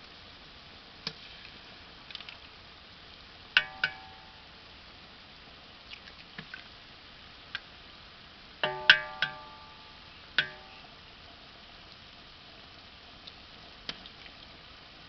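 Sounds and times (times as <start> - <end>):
eggs tapped on metal pot rim: 3.6 - 4.1, 8.6 - 9.5, 10.4 - 10.7.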